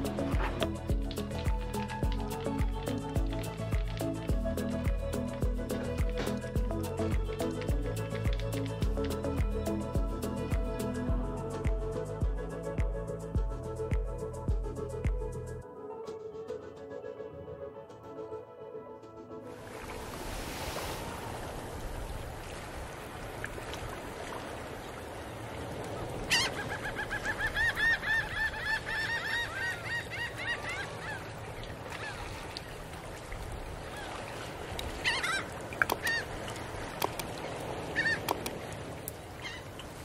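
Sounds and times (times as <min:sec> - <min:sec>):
birds calling: 0:26.0 - 0:32.3, 0:34.9 - 0:38.6, 0:39.3 - 0:40.0
sharp clicks: 0:37.0 - 0:37.3, 0:38.2 - 0:38.6.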